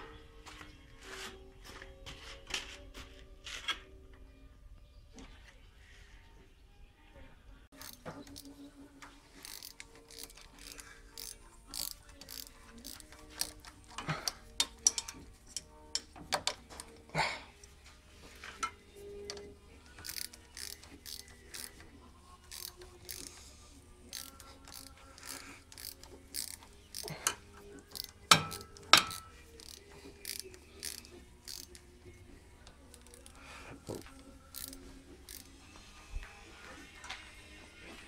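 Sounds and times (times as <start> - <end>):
small metallic clicks and taps: 7.8 - 17.0.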